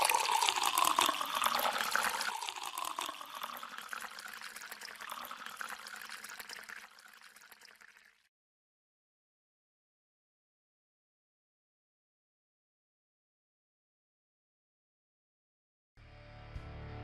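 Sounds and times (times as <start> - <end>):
water pouring into a glass: 0.0 - 8.3.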